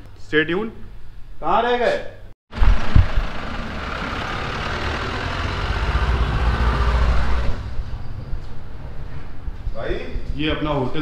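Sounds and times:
vehicles passing: 0:02.5 - 0:09.8
low traffic rumble: 0:02.5 - 0:10.4.

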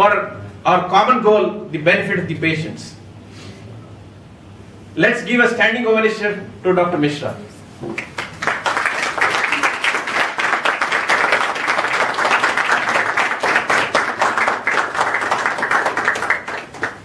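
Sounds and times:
audience applauding: 0:08.0 - 0:17.0.

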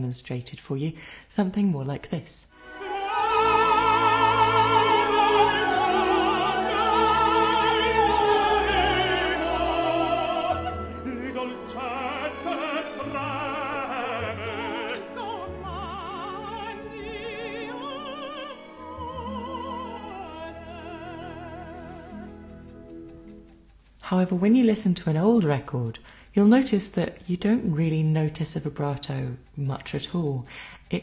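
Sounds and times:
soprano and tenor opera singing: 0:02.6 - 0:23.3
orchestral accompaniment: 0:02.6 - 0:23.6.

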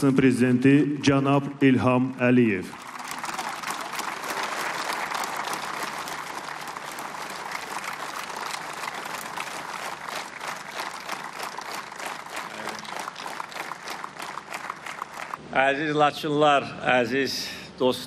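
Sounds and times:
crowd applauding: 0:02.7 - 0:15.4.

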